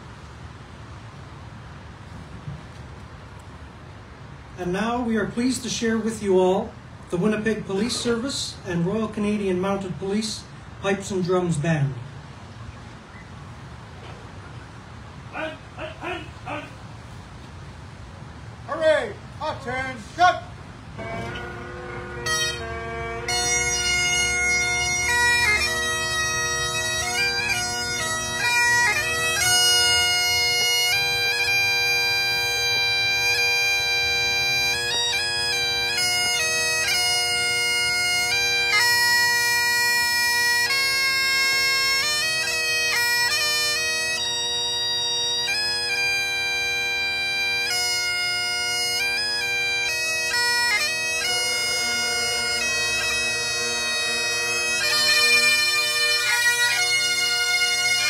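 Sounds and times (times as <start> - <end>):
bagpipes playing a tune: 20.9 - 58.0.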